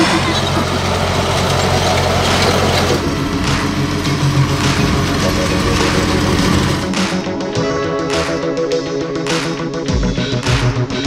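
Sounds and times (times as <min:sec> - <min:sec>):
tractor diesel engine running: 0:00.0 - 0:07.6.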